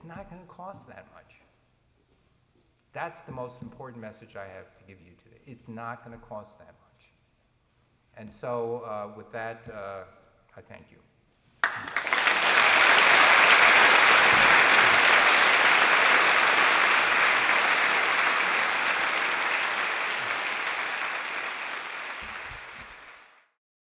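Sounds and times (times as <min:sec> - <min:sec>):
audience applauding: 0:11.6 - 0:23.5.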